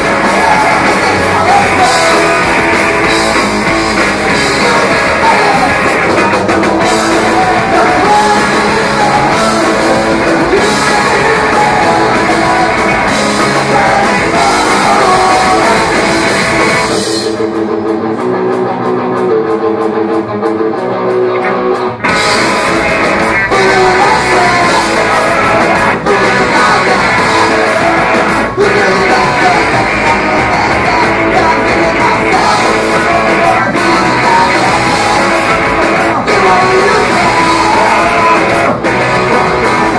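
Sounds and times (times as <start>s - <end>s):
person singing: 0.0s - 17.4s, 23.3s - 39.9s
distorted electric guitar: 0.0s - 39.9s
punk rock band playing: 0.0s - 39.9s.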